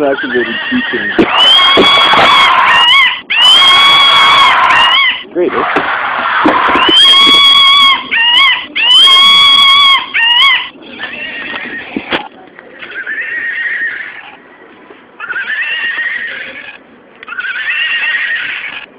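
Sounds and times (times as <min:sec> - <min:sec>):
electronic animal-call noises: 0:00.0 - 0:05.3, 0:06.4 - 0:12.2, 0:15.2 - 0:18.9.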